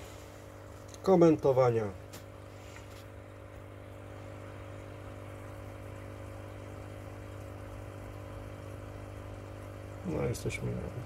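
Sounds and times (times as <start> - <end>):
hiss of air and water: 0.0 - 0.7
air pump humming: 0.0 - 11.0.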